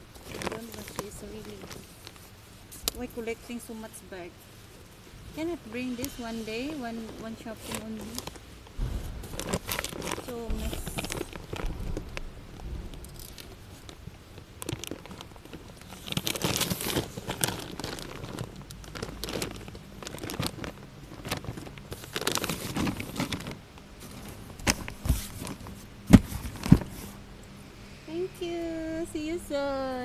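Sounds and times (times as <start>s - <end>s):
shopping bags rustling and crinkling: 0.0s - 27.2s
sharp knocks: 8.8s - 9.8s.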